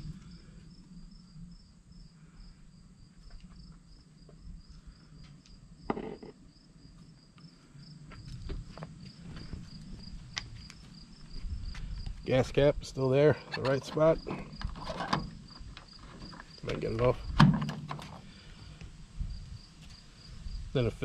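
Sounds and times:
insects chirping: 0.0 - 21.0
knock: 5.9 - 6.3.

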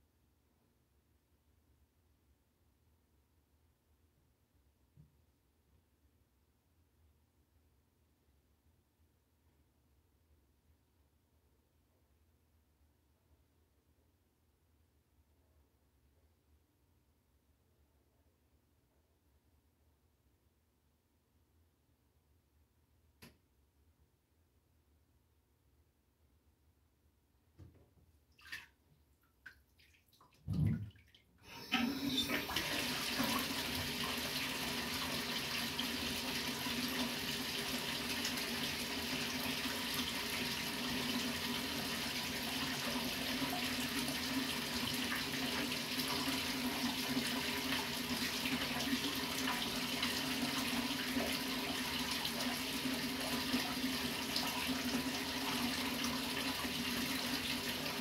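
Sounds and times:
water tap running: 31.4 - 58.0.

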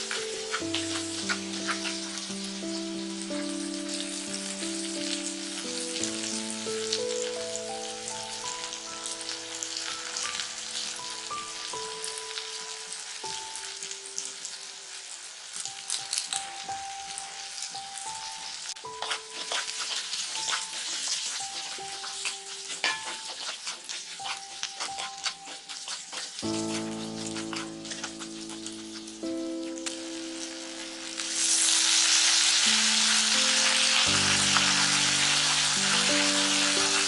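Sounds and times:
food sizzling in hot oil: 0.0 - 37.0
soft background music: 0.0 - 37.0
wooden spatula stirring: 18.7 - 29.8.

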